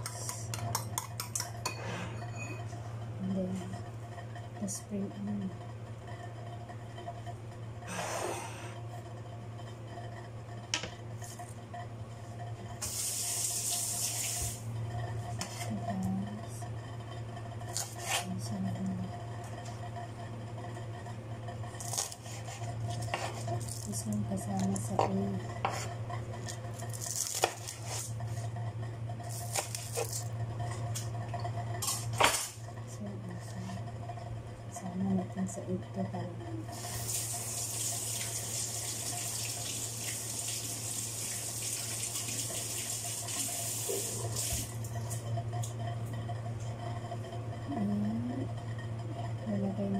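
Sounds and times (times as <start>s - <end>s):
steady low hum: 0.0s - 49.9s
tap water running: 12.8s - 14.7s, 36.7s - 45.2s.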